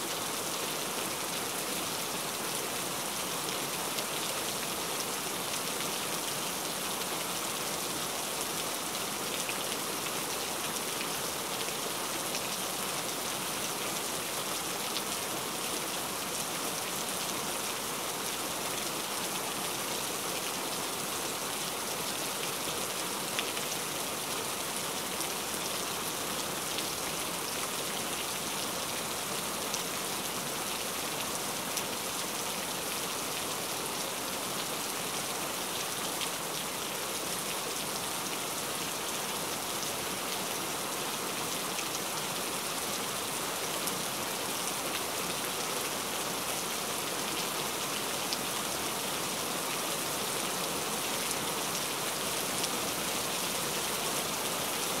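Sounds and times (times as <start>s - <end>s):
steady rain: 0.0s - 55.0s.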